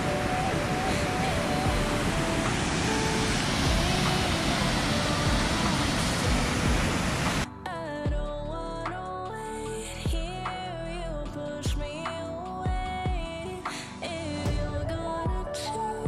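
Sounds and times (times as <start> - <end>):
river water rushing over waterfall: 0.0 - 7.5
background music: 0.0 - 16.0.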